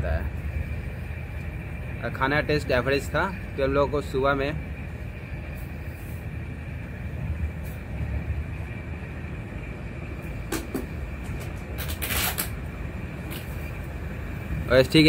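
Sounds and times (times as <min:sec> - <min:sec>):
high hum: 0:00.0 - 0:15.0
train low rumble: 0:00.0 - 0:15.0
rattle: 0:10.5 - 0:12.6.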